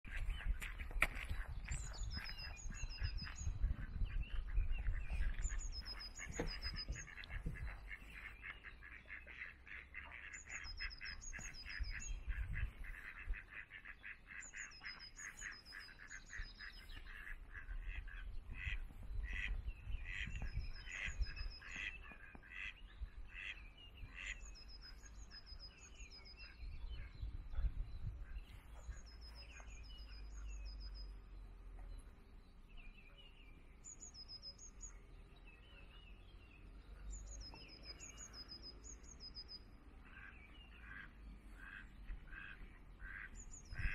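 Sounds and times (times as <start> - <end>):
wind rumble on microphone: 0.0 - 8.3, 10.6 - 13.6, 15.8 - 22.1, 26.5 - 29.8, 43.5 - 43.9
ducks quacking: 0.1 - 30.1, 40.0 - 43.9.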